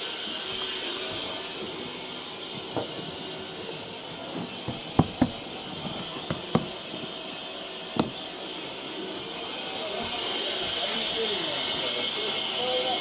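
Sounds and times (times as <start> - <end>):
steam hissing from locomotive: 0.0 - 13.0
sharp knocks: 4.6 - 5.4, 6.3 - 6.8, 8.0 - 8.2.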